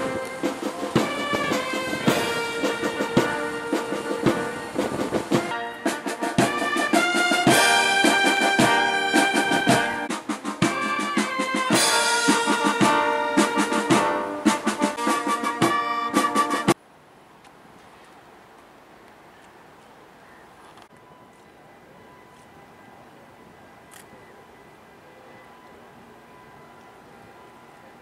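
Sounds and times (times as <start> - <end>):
military brass band playing: 0.0 - 16.8
faint background noise: 0.0 - 28.0.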